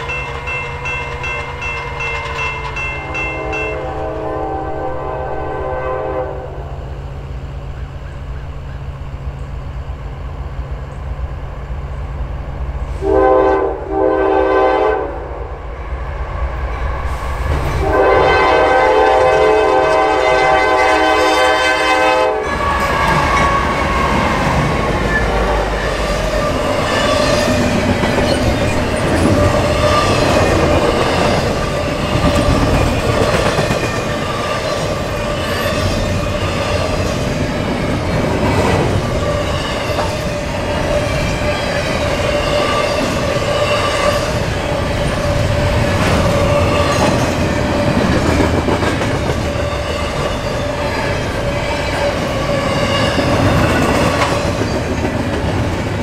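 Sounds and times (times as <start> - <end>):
train wheels clattering on rails: 0.0 - 3.8, 22.5 - 56.0
train air horn blasts: 2.9 - 6.9, 12.9 - 15.6, 17.8 - 24.1.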